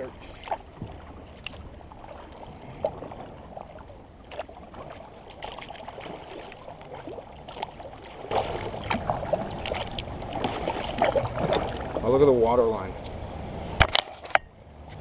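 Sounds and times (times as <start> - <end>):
paddle dipping in water: 0.0 - 13.8
water lapping at hull: 0.0 - 14.9
water dripping and trickling: 4.3 - 12.2.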